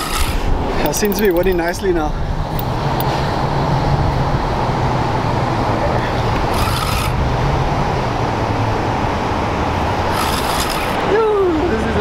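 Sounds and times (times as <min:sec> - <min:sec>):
short rasp: 0:00.0 - 0:00.5, 0:06.5 - 0:07.2, 0:10.1 - 0:11.0
wind buffeting microphone: 0:00.0 - 0:12.0.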